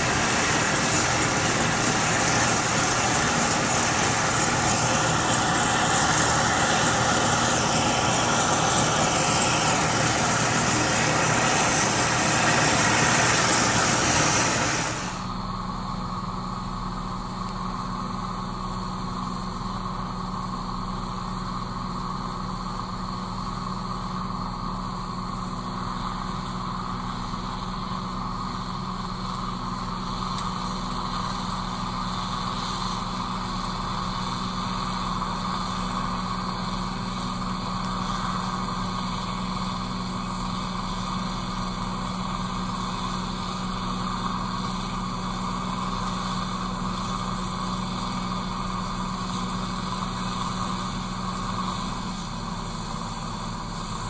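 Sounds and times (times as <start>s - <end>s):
combine harvester humming: 0.0s - 54.0s.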